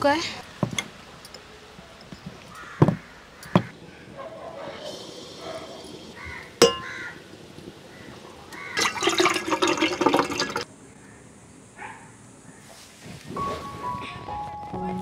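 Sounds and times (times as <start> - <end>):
frying sizzle in hot oil: 4.9 - 8.8.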